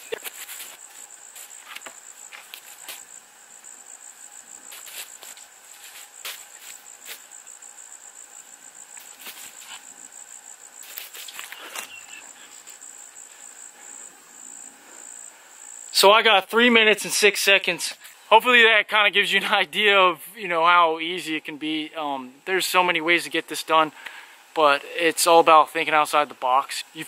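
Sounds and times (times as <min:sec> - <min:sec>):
footsteps on dry leaves: 0:00.0 - 0:03.1, 0:04.7 - 0:07.3, 0:09.0 - 0:09.9, 0:10.8 - 0:12.8
insects chirring: 0:00.0 - 0:27.0.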